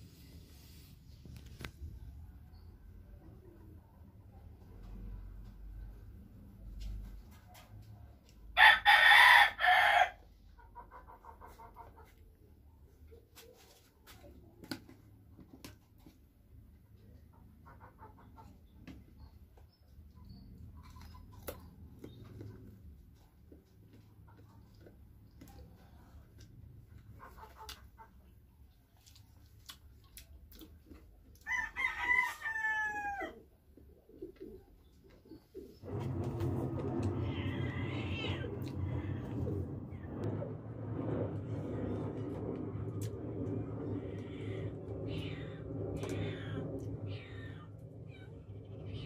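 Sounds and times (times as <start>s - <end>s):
rooster crowing: 8.6s - 10.2s, 31.5s - 33.4s
chicken clucking: 10.4s - 12.5s, 17.0s - 19.3s, 26.9s - 29.4s.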